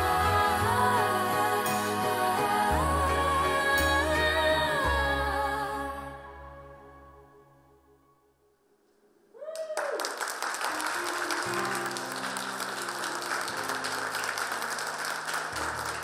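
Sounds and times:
quiet music with held notes: 0.0 - 9.0
person whooping: 9.3 - 10.2
audience applause: 9.6 - 16.0.

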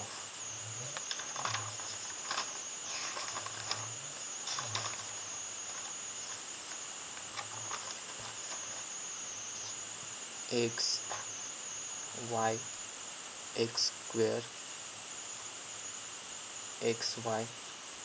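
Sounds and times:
paper rustling: 0.0 - 9.8, 11.0 - 11.4
crickets droning: 0.0 - 18.0.

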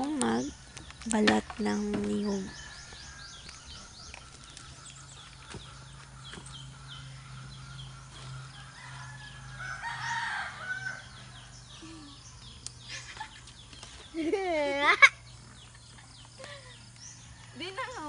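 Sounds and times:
small birds chirping: 0.0 - 18.0
rooster crowing: 2.5 - 4.0, 8.4 - 11.6.

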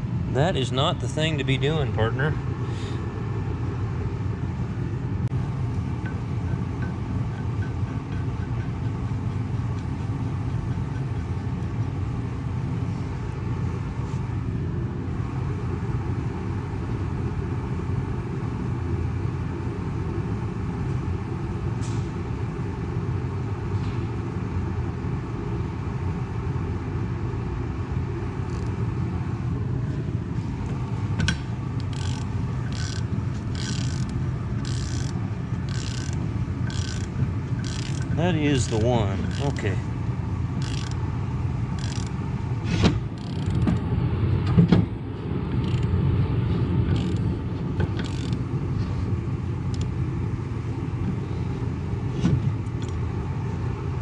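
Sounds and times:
machinery rumbling: 27.6 - 49.8
ratchet wrench clicking: 31.8 - 39.6, 40.6 - 41.0, 41.8 - 42.1, 43.2 - 43.6, 46.9 - 47.2, 48.0 - 48.4.

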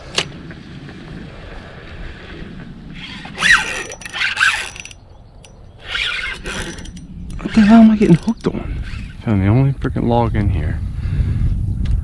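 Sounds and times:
fishing reel drag squealing: 3.0 - 9.3.

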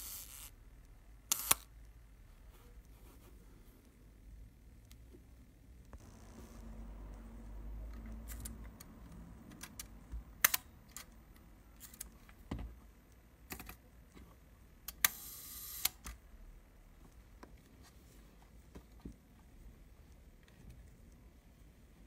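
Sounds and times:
camera shutter clicks: 1.3 - 1.7
shutter timing gears buzzing: 6.0 - 7.7.

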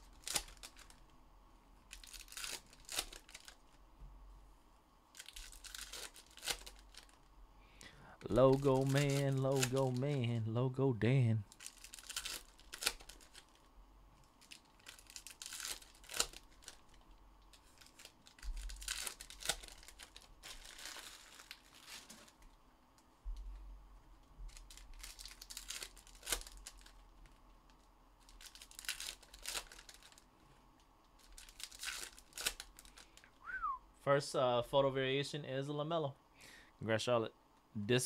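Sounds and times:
plastic wrappers crinkling and tearing: 0.0 - 1.1, 1.9 - 3.8, 5.1 - 7.3, 8.3 - 10.4, 11.5 - 22.6, 24.5 - 30.3, 31.1 - 33.3.

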